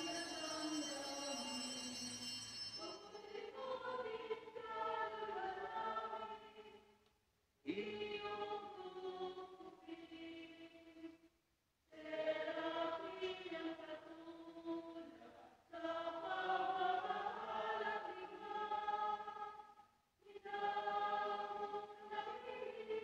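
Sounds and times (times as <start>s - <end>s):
choir singing a hymn: 0.0s - 2.2s, 2.8s - 6.8s, 12.0s - 19.6s, 20.2s - 23.0s.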